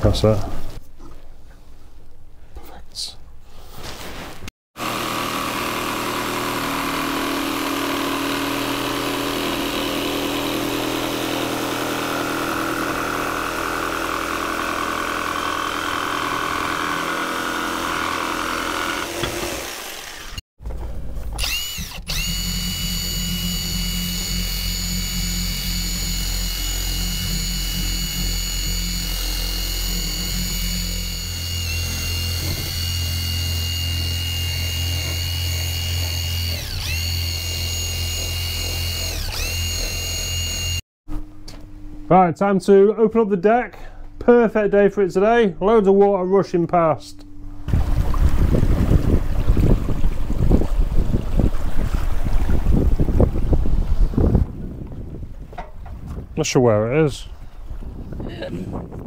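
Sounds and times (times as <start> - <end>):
cordless power tool whining: 4.8 - 20.4, 21.3 - 40.8
jigsaw cutting wood: 4.8 - 20.4, 21.4 - 40.8.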